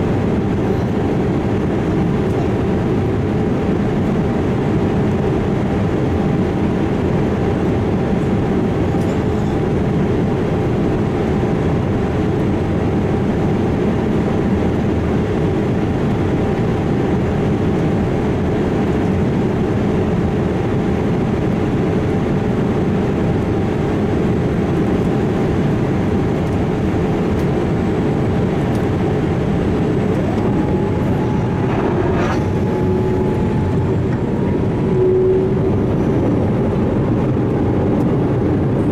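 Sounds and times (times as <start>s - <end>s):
jet engines running: 0.0s - 38.9s
rising tone: 30.1s - 36.1s.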